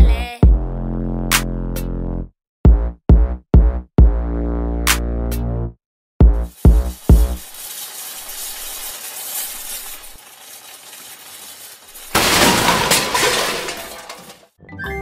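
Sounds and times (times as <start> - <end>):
loud noisy crash: 10.0 - 14.4.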